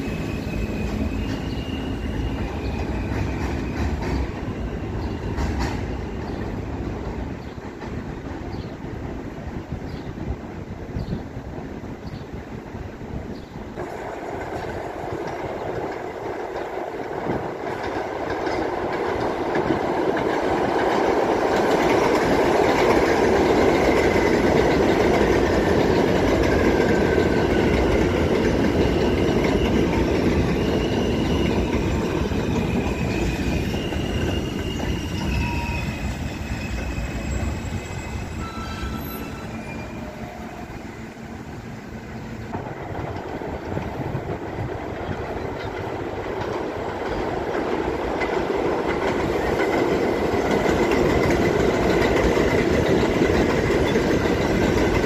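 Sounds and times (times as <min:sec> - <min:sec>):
high metallic squeals: 0:00.0 - 0:05.4, 0:28.9 - 0:41.2
train rumbling on steel track: 0:00.0 - 0:55.0.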